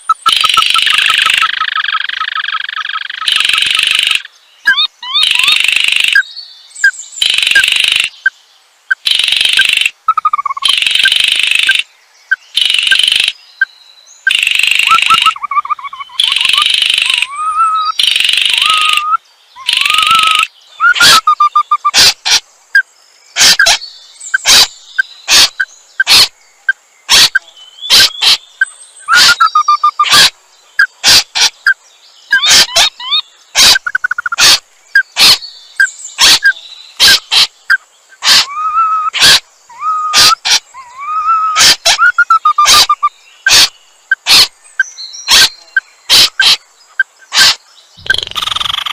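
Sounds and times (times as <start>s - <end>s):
dry rasping calls: 0.0s - 6.2s, 8.9s - 11.8s, 12.6s - 13.3s, 14.3s - 22.4s, 23.4s - 23.8s, 24.4s - 24.7s, 25.3s - 26.3s, 27.1s - 28.5s, 29.1s - 34.6s, 35.2s - 35.4s, 36.2s - 37.6s, 38.2s - 44.5s, 45.3s - 46.6s, 47.2s - 48.9s.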